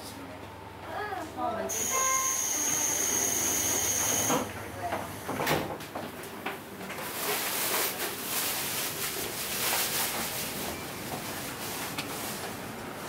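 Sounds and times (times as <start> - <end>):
train interior hiss: 1.7 - 5.4.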